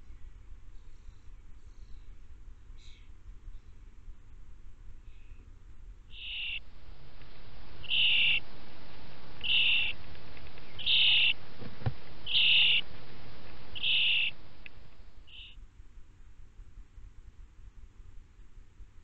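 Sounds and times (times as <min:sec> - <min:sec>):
young starlings hissing calls: 0:06.2 - 0:15.5.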